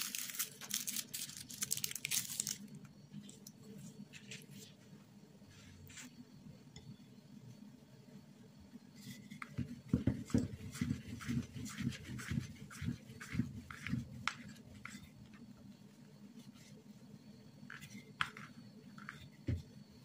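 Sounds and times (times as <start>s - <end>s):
rolling pin rumbling over dough: 9.0s - 15.7s.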